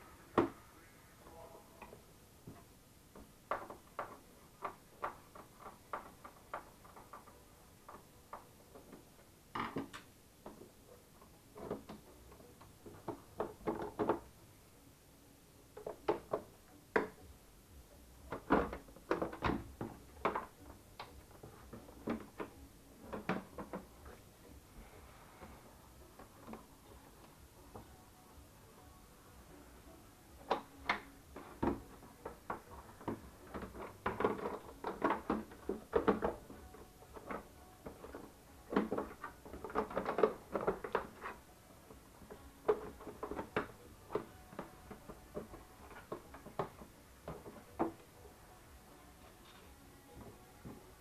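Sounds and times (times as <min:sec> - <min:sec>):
plastic parts clicking and rattling: 0:01.8 - 0:14.3, 0:18.3 - 0:24.2, 0:30.4 - 0:48.1.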